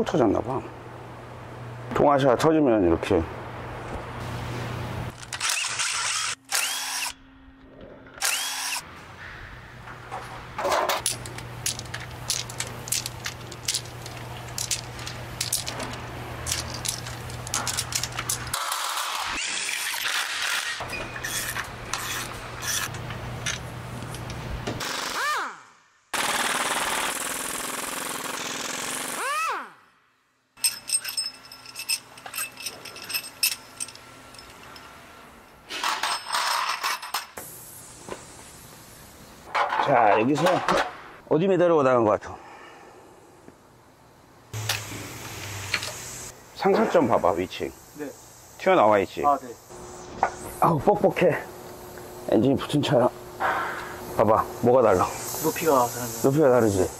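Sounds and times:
power tool whining: 8.2 - 8.8
metal clinks and knocks: 10.6 - 18.6, 30.6 - 37.3.

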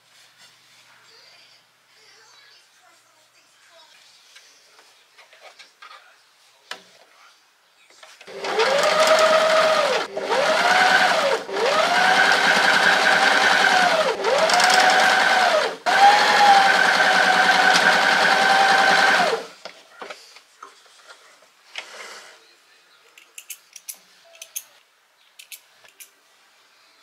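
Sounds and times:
sewing machine stitching: 8.3 - 19.5.

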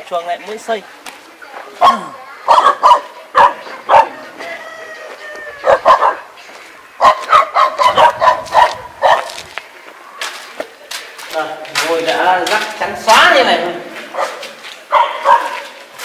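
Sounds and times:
dog barking: 1.8 - 4.2, 5.6 - 6.3, 7.0 - 9.4, 14.1 - 15.8.

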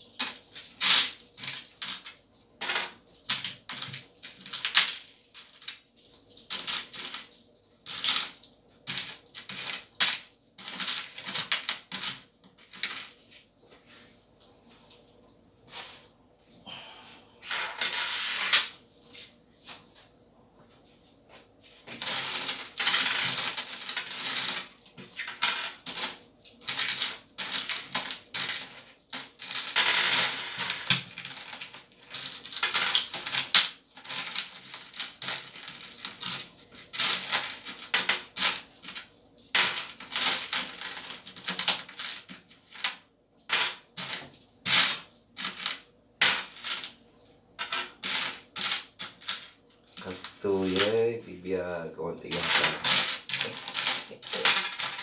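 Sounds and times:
coins clinking and jingling: 17.4 - 18.8, 22.0 - 42.9, 52.3 - 55.0.

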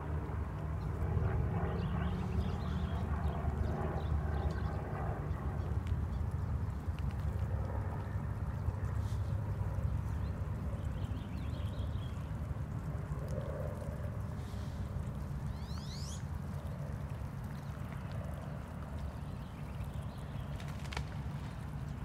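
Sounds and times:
small bird chirping: 15.5 - 16.4.

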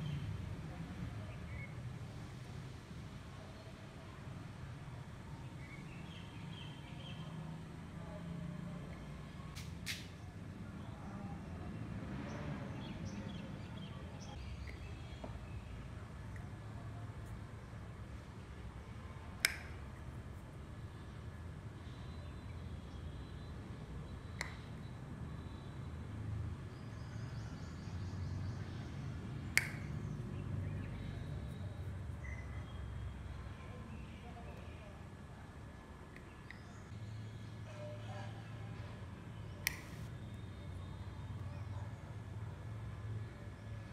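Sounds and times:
short sharp clicks: 29.5 - 30.0, 39.6 - 40.1
faint bird chirps: 29.8 - 35.0, 36.2 - 42.1.

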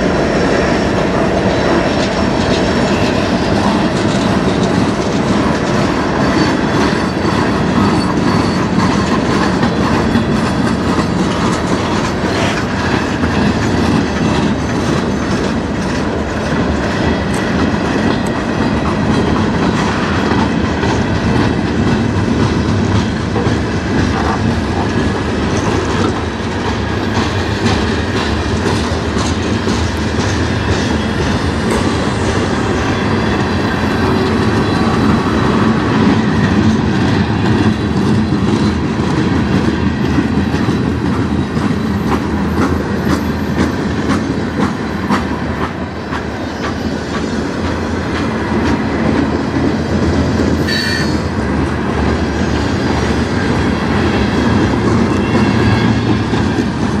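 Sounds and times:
train wheels rumbling: 0.0 - 57.0
wheels clacking over rail joints: 0.0 - 57.0.

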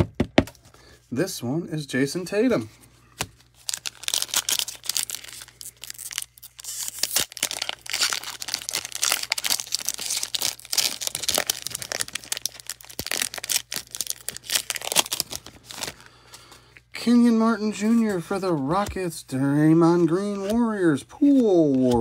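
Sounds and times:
foil wrapper crinkling: 3.2 - 16.8
foil card pack being torn open: 3.6 - 16.1.

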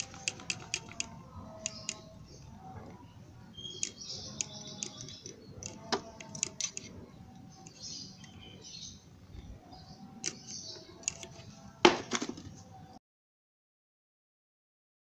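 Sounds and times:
clutch plates clicking and clinking: 3.8 - 6.9.

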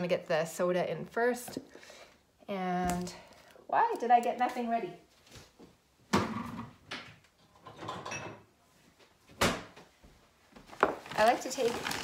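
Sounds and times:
things moved about inside: 1.4 - 12.0.

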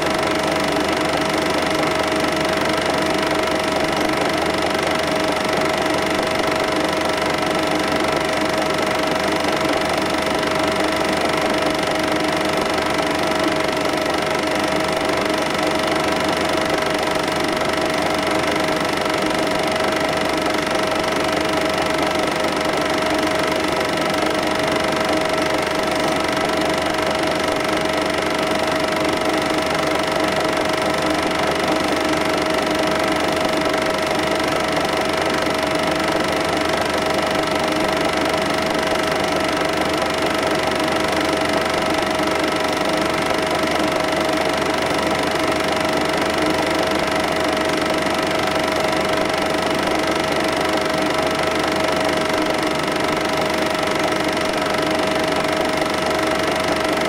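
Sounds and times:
film projector whirring: 0.0 - 57.0.

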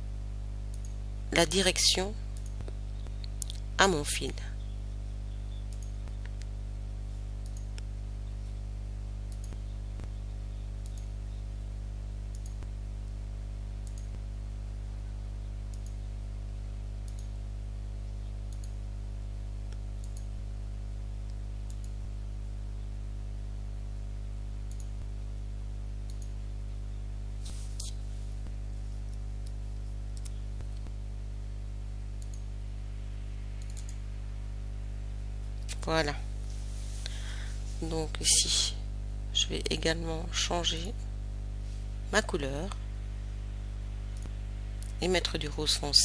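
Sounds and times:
low electrical hum: 0.0 - 46.0
computer mouse clicking: 0.7 - 1.0, 5.7 - 6.5, 7.4 - 7.9, 9.3 - 10.1, 10.8 - 11.1, 12.3 - 12.7, 13.8 - 14.2, 15.7 - 16.0, 17.1 - 17.3, 18.5 - 18.8, 19.7 - 20.4, 21.3 - 22.0, 24.7 - 25.0, 26.1 - 26.3, 29.1 - 30.9, 32.2 - 32.4, 33.6 - 34.0.

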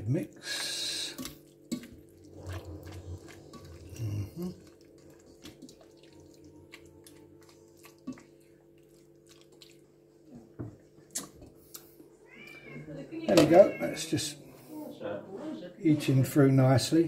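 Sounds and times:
food stirred in a pot: 0.0 - 10.3.

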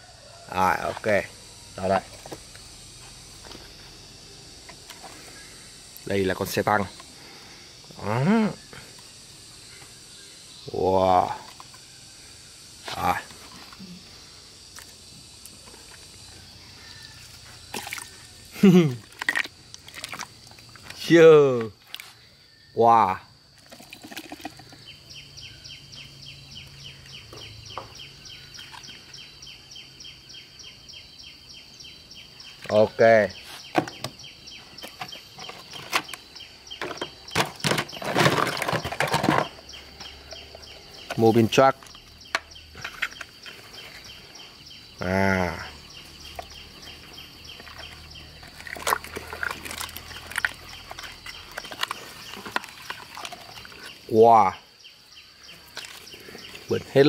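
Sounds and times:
wet mud sloshing: 17.7 - 18.2, 19.0 - 20.8, 47.0 - 53.8
plastic toy cars clicking and knocking: 36.8 - 41.2, 47.6 - 53.9.

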